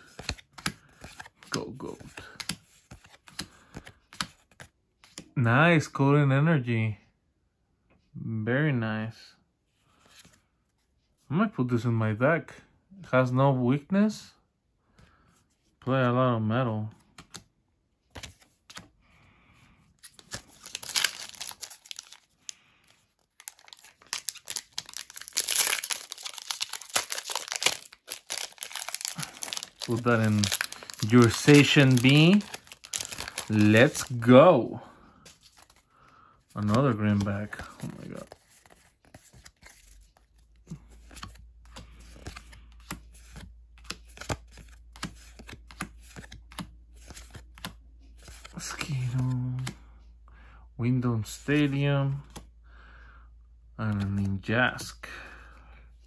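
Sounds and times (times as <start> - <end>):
foil wrapper crinkling: 20.4 - 22.6, 23.2 - 34.3
trading cards clicking and flicking: 23.4 - 34.2, 41.0 - 49.8.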